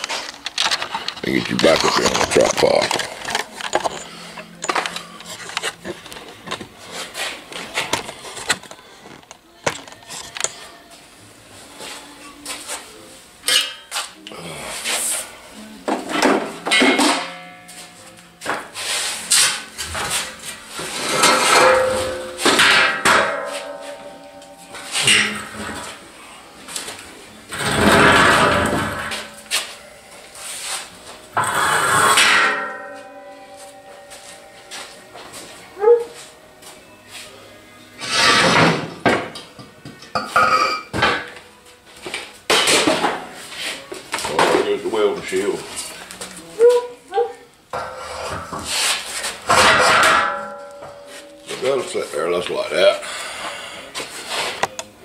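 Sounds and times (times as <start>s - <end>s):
heavy steel clanking and ringing: 16.7s - 18.1s, 21.2s - 25.9s, 31.4s - 35.2s, 49.5s - 52.0s
metal scraping clatter: 18.9s - 24.2s, 27.5s - 34.7s, 38.0s - 38.8s.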